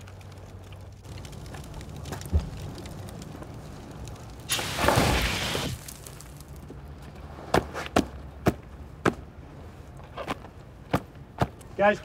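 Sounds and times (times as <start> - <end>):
fire extinguisher spraying: 4.5 - 5.8.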